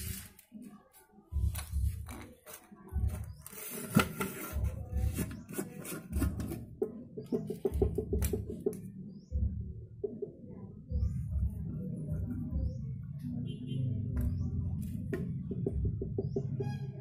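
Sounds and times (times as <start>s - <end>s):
pipes rubbing and clicking: 1.6s - 8.8s
dull low thumps: 10.7s - 13.0s.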